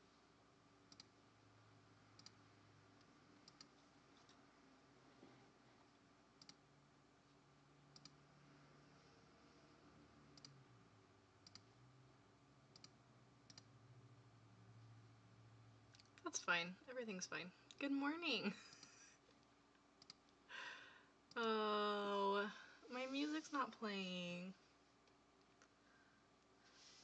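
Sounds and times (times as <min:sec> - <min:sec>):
computer mouse clicks: 0:00.9 - 0:01.2, 0:02.1 - 0:02.4, 0:03.0 - 0:04.4, 0:06.4 - 0:06.6, 0:07.9 - 0:08.2, 0:10.3 - 0:10.6, 0:11.4 - 0:11.8, 0:12.7 - 0:13.7, 0:18.7 - 0:20.4.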